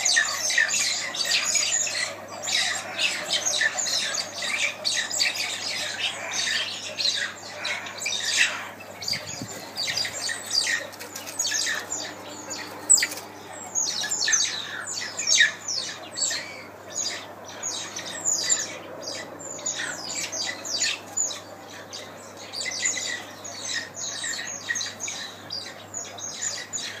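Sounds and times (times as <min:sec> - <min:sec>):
mongooses squawking calls: 0:00.0 - 0:27.0.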